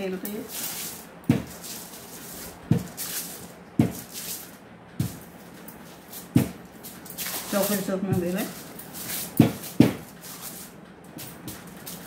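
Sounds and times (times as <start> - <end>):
foil crinkling under rolling pin: 0.0 - 12.0
rolling pin knocking on table: 1.3 - 1.5, 9.4 - 10.0.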